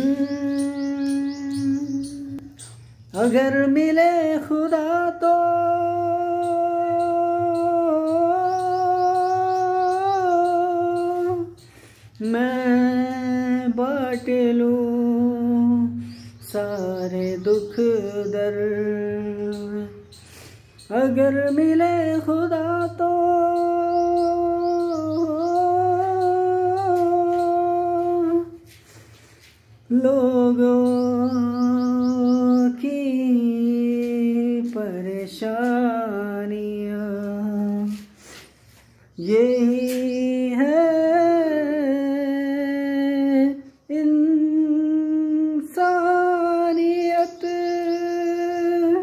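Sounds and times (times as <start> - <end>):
man humming: 0.0 - 2.5.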